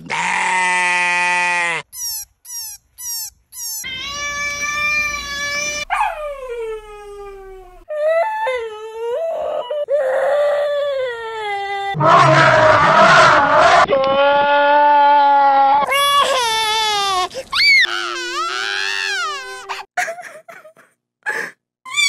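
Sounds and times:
cartoon characters wailing: 3.6 - 7.8
cartoon characters sobbing: 14.7 - 22.0.

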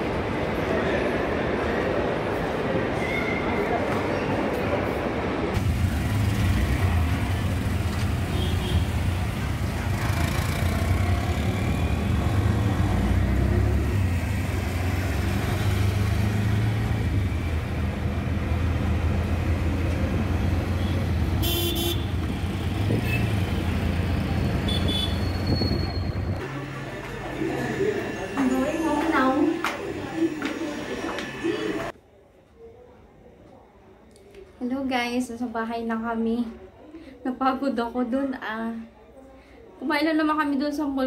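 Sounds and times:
auto-rickshaw engine drone: 5.4 - 31.9
vehicle horns tooting: 8.2 - 9.1, 20.8 - 22.2, 24.6 - 26.4.

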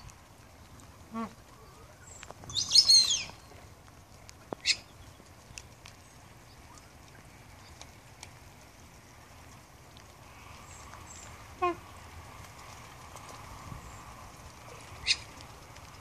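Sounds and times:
rain hiss: 0.0 - 16.0
high bird chirps: 2.0 - 3.5.

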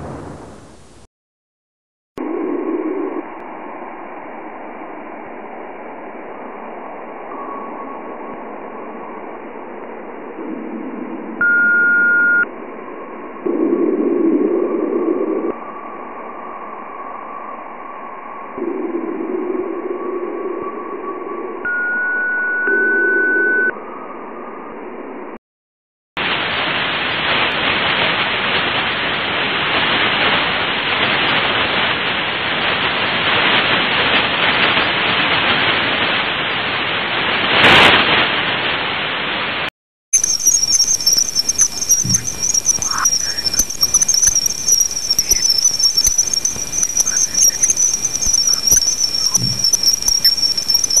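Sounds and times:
crackling hiss: 0.0 - 1.1, 26.2 - 51.0
dense rushing hiss: 0.0 - 1.1
humming noise: 0.0 - 1.1, 2.2 - 25.4, 40.2 - 51.0
steady high whine: 2.2 - 25.4, 40.2 - 51.0.

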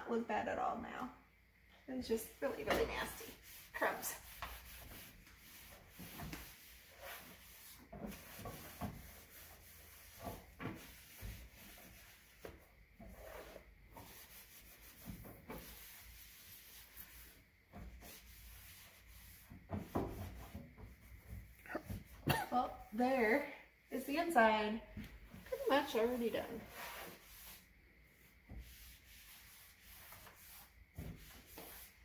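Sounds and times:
cloth wiping inside microwave: 2.3 - 23.0.

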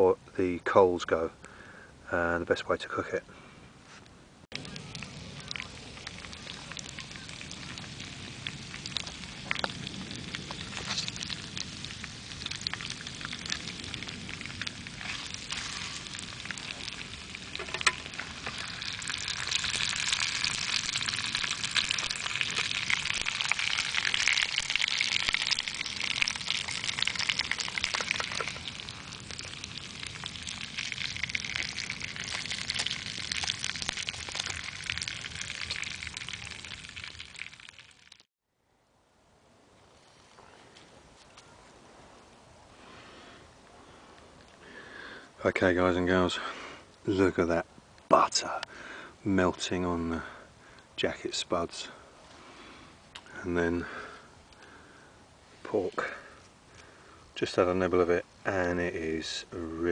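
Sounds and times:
meat sizzling and spitting in a tin: 4.5 - 38.2
sharp crack from fire: 4.5 - 38.3
wood fire crackling: 4.5 - 38.3, 42.2 - 59.9.

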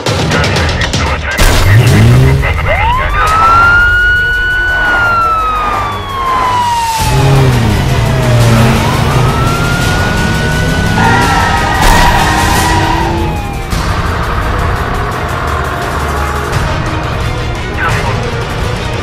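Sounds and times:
background music: 0.0 - 19.0
wailing emergency siren: 2.6 - 16.6.

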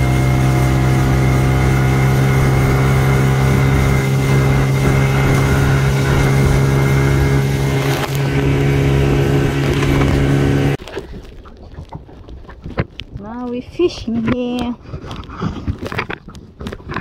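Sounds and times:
outboard motor running: 0.0 - 12.2
water rushing: 0.0 - 13.8
wind: 0.0 - 17.0.

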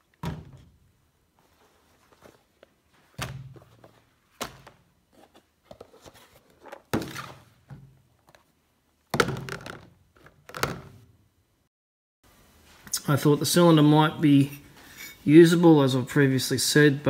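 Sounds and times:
rustling: 1.3 - 7.6.

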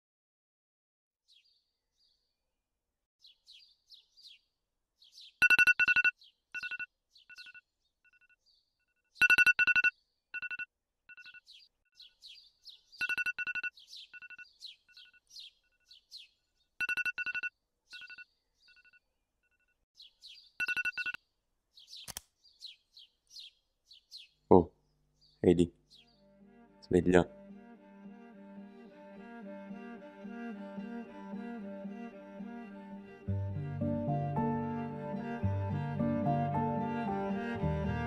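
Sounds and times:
small birds chirping: 1.3 - 2.4, 3.2 - 10.2, 11.2 - 19.0, 20.0 - 26.4
electronic alarm beeping: 5.4 - 7.6, 9.2 - 11.4, 13.0 - 14.5, 16.8 - 18.9, 20.6 - 21.2.

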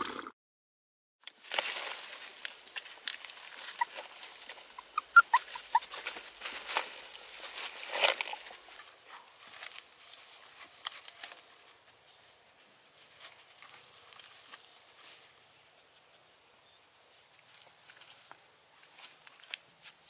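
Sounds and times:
high-pitched insect whine: 1.2 - 20.0
rustles in dry leaves: 1.4 - 15.4.

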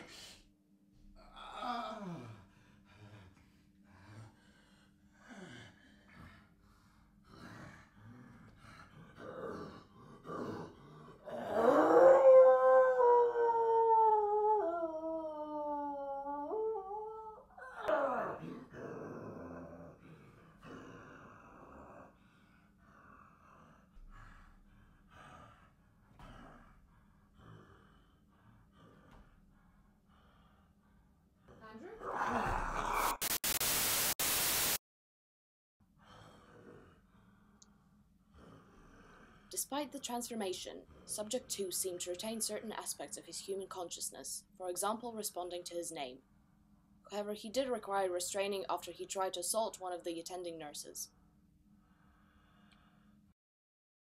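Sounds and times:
man groaning and moaning: 1.2 - 3.2, 32.0 - 33.3
man breathing heavily: 1.2 - 9.2, 22.1 - 31.1, 51.8 - 53.2.

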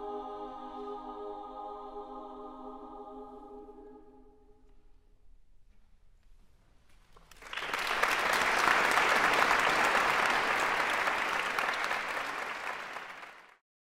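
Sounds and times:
audience applause: 7.3 - 13.6.

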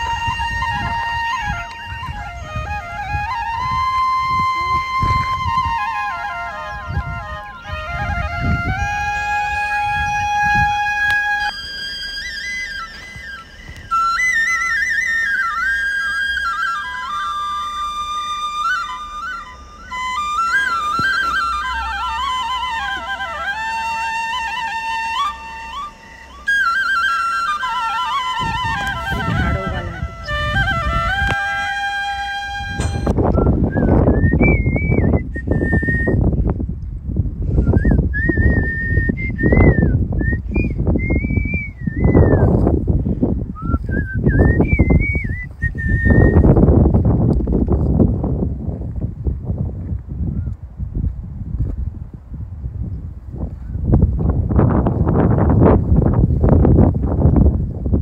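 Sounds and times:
low rumble on microphone: 0.0 - 14.4, 28.0 - 58.0
high melody background music: 15.0 - 33.3
person whistling a slow tune: 32.8 - 36.4, 37.5 - 42.6, 43.5 - 46.6.

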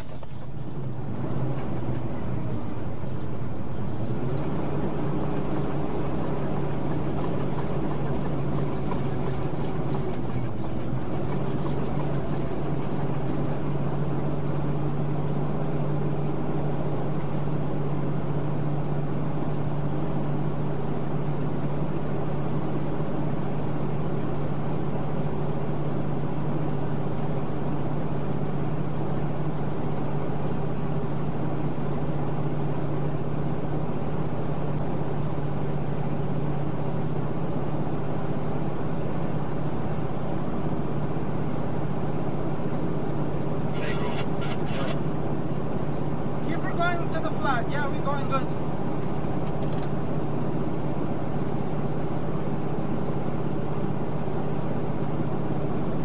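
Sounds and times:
truck engine running under load: 0.0 - 56.0
tyres on gravel road: 0.0 - 56.0.

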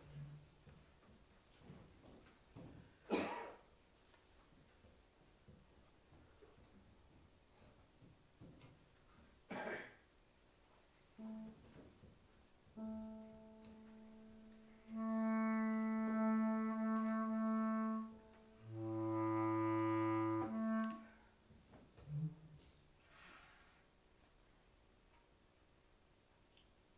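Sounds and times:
bass clarinet long notes: 11.2 - 12.0, 12.7 - 21.3, 22.0 - 22.6.

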